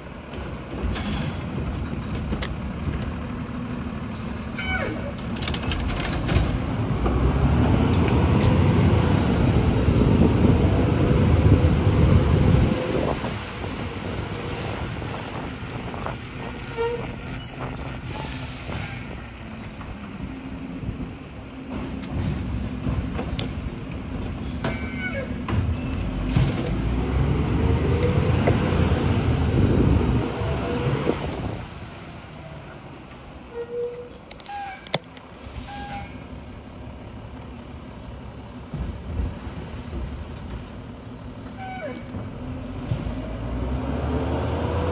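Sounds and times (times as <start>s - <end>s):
diesel truck engine rumble: 0.0s - 44.9s
high squeaks: 15.8s - 19.1s, 32.9s - 36.2s.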